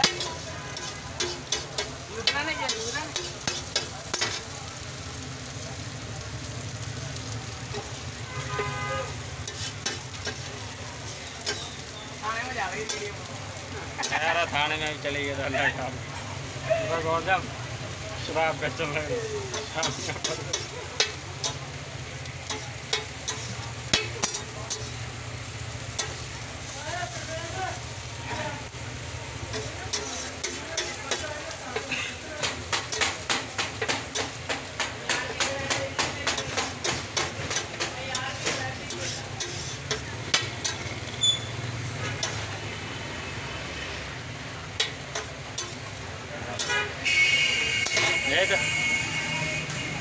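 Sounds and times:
metal spatula scraping hot plate: 0:00.0 - 0:04.5, 0:07.7 - 0:13.2, 0:18.8 - 0:27.3, 0:29.4 - 0:42.6, 0:44.8 - 0:46.9, 0:47.8 - 0:48.6
patties sizzling on griddle: 0:00.0 - 0:50.0.

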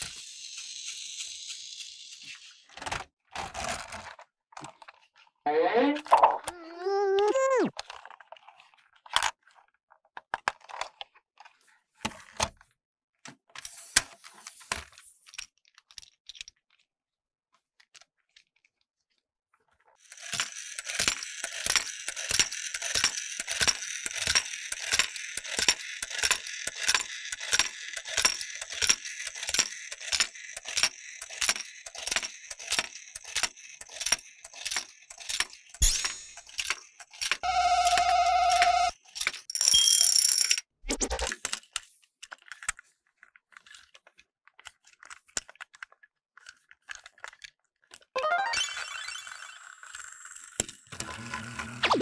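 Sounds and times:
small motor whirring: 0:00.0 - 0:02.8, 0:20.0 - 0:39.4, 0:48.6 - 0:52.0
plastic toy clicks: 0:00.0 - 0:04.8, 0:20.0 - 0:42.8, 0:44.6 - 0:48.1
mechanism clacking: 0:20.2 - 0:38.0.

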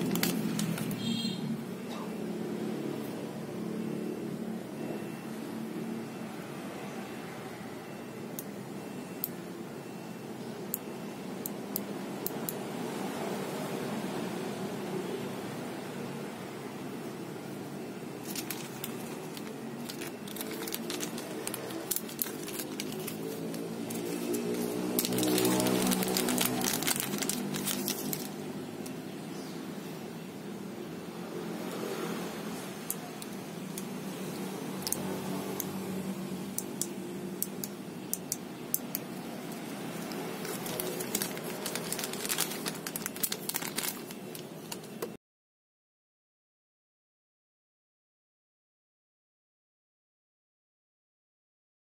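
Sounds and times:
plastic bag crinkling: 0:00.0 - 0:01.0, 0:18.2 - 0:28.4, 0:39.5 - 0:45.1.

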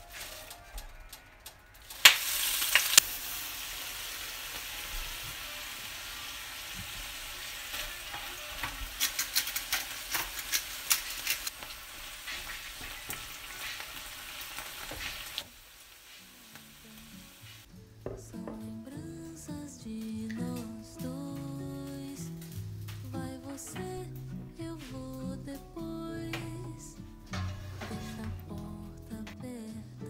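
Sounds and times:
vegetables sizzling in hot oil: 0:01.8 - 0:17.7.

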